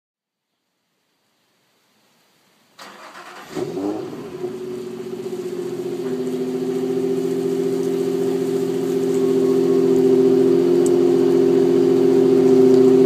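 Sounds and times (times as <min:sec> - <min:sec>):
car engine revving and idling: 0:02.9 - 0:13.0.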